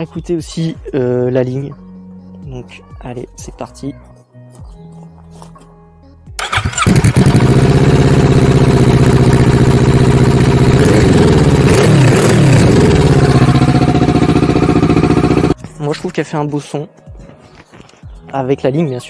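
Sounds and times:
motorcycle engine idling: 0:06.4 - 0:15.6
starter cranking: 0:06.4 - 0:15.6.

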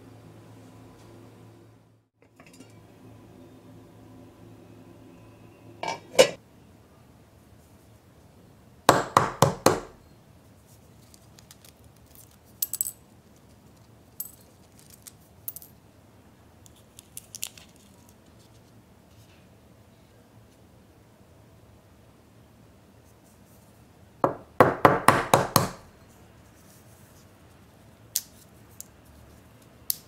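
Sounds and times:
shell peeling crackle: 0:11.0 - 0:12.4.

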